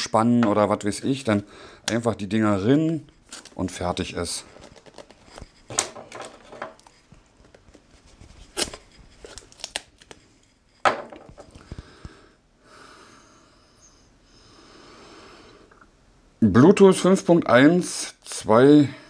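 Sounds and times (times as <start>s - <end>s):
faint steady noise: 0.0s - 19.0s
cardboard box crinkling: 3.3s - 5.5s, 6.2s - 10.2s.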